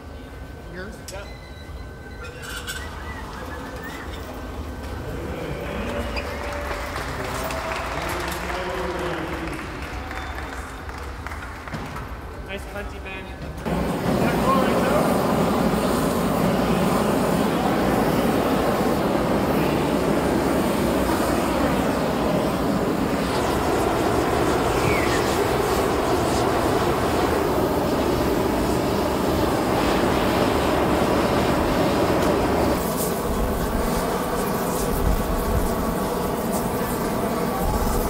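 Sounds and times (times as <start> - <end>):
gas burners rushing: 2.4 - 38.0
ventilation: 2.4 - 38.0.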